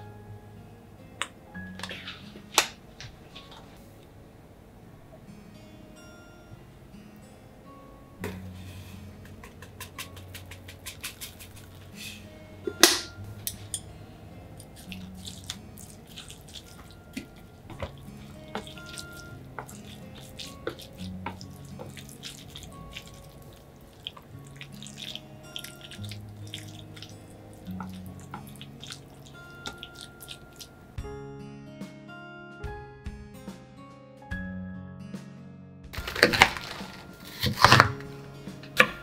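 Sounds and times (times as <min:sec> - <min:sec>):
chopsticks squishing wet cabbage: 0:08.7 - 0:13.8, 0:14.6 - 0:30.8, 0:36.0 - 0:39.0
chopsticks clicking against bowl: 0:09.5 - 0:11.8.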